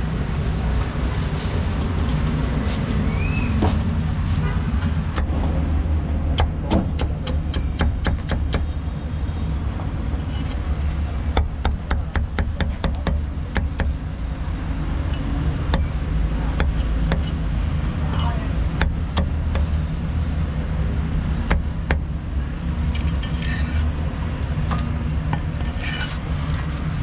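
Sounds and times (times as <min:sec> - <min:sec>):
street traffic rumble: 0:00.0 - 0:27.0
cleaver chopping on wooden block: 0:06.3 - 0:08.7.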